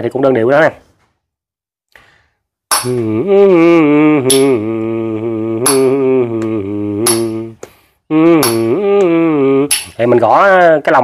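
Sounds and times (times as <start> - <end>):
man humming: 2.8 - 10.2
musical spoons clacking: 9.7 - 10.0.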